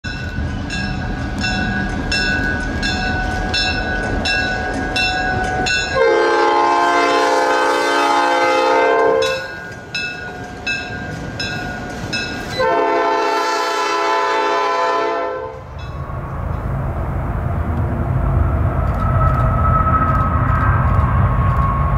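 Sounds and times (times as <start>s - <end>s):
crossing bell ringing: 0.0s - 14.1s, 15.4s - 16.3s
locomotive engines rumbling: 0.0s - 21.9s
locomotive air horn blasts: 5.9s - 9.6s, 12.6s - 15.6s.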